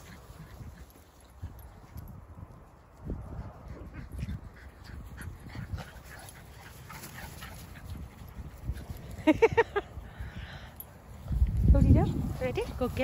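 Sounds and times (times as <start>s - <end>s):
dogs barking and yipping: 2.8s - 9.7s.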